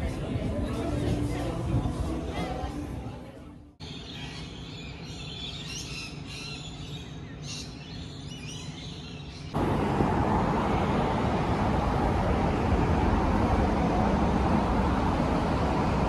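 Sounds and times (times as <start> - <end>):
low hum of city traffic: 0.0 - 16.0
birds chirping: 3.8 - 12.6
loud road traffic roar: 9.6 - 16.0.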